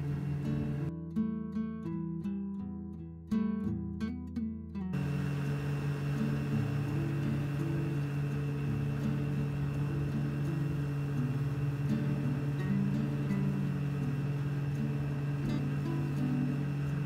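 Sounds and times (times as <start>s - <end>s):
boat engine drone: 0.0s - 0.9s, 5.0s - 17.0s
water rushing: 5.0s - 17.0s.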